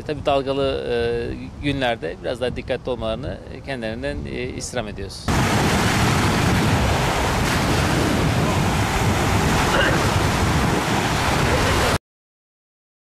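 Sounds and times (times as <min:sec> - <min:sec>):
wind rumbling on microphone: 0:00.0 - 0:12.0
surf breaking on beach: 0:05.3 - 0:12.0.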